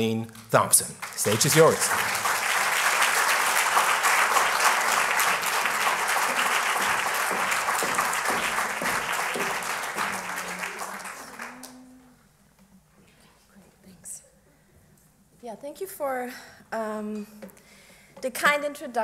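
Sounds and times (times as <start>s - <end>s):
audience applauding: 0.9s - 12.1s.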